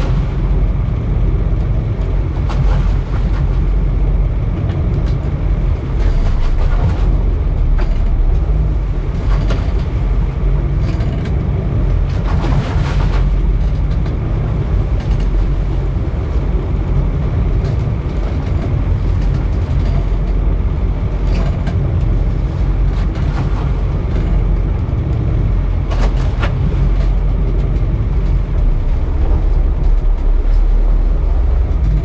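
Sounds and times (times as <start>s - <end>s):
boat engine droning: 0.0s - 32.0s
water wash at stern: 0.0s - 32.0s.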